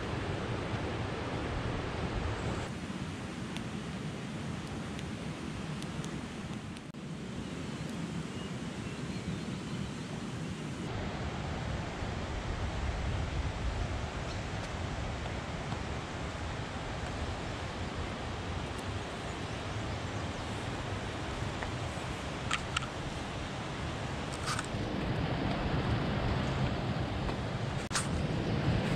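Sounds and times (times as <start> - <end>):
wind on microphone: 9.2 - 28.9.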